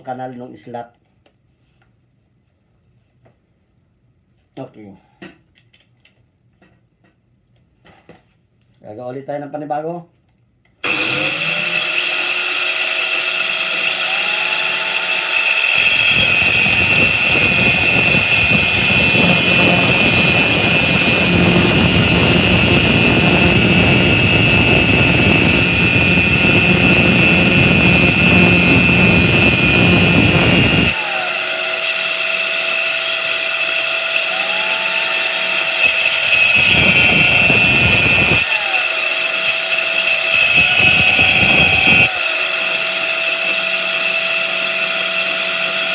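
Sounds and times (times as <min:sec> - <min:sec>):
angle grinder whining: 0:10.8 - 0:45.9
drill motor speeding up: 0:10.8 - 0:45.9
metal grinding on disc: 0:10.9 - 0:34.3, 0:35.0 - 0:38.8, 0:39.4 - 0:42.1.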